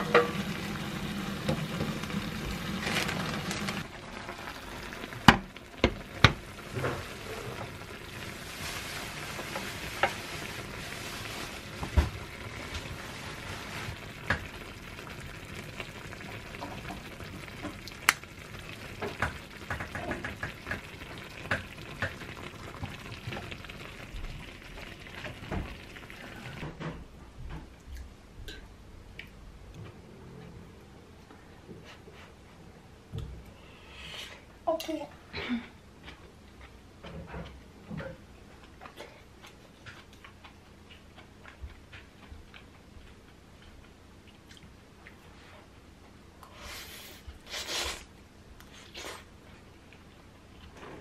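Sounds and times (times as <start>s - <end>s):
food sizzling in a pot: 0.0s - 26.6s.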